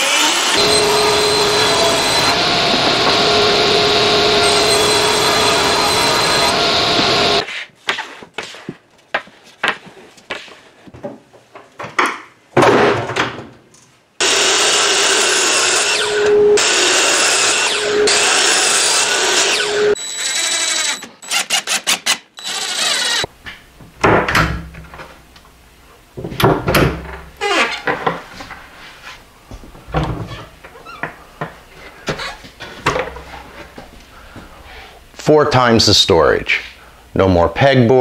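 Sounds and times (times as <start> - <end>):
miter saw cutting wood: 0.0 - 7.5, 14.2 - 23.3.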